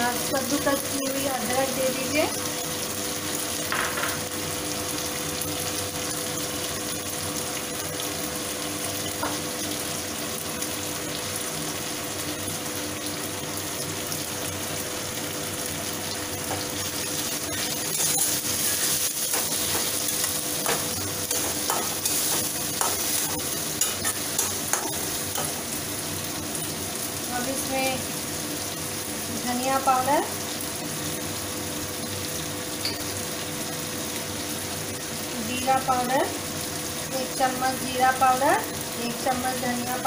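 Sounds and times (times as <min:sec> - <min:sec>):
vegetables sizzling in hot oil: 0:00.0 - 0:40.0.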